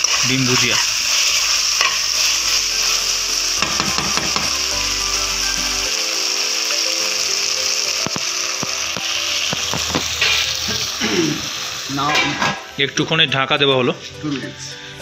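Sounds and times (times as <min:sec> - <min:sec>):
metal spoon scraping a pan: 0:00.0 - 0:03.0
food sizzling in a pan: 0:00.0 - 0:15.0.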